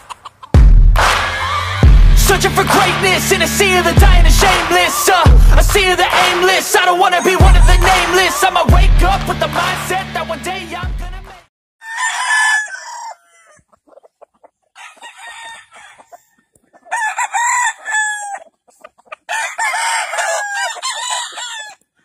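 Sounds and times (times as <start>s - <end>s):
roosters crowing: 1.1s - 10.2s, 11.8s - 13.7s, 14.8s - 18.5s, 19.2s - 21.9s.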